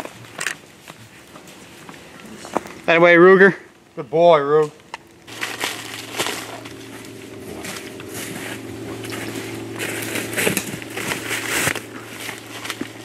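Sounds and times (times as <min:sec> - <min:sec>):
low steady hum: 0:00.0 - 0:13.0
leaves and snow crunching: 0:05.2 - 0:13.0.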